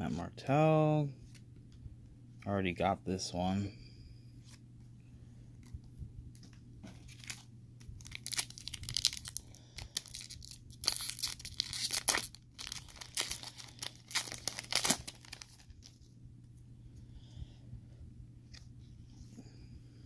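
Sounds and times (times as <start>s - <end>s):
wrapper crinkling and tearing: 7.0s - 16.1s.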